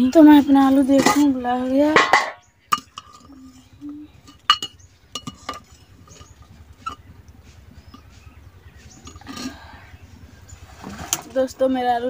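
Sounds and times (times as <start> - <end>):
metal spoon knocking on pot: 1.9 - 3.4, 4.2 - 7.1.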